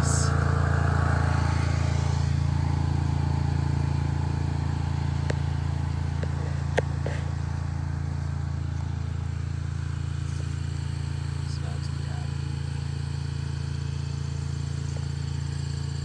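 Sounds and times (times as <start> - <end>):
lawn mower engine running: 0.0 - 16.0.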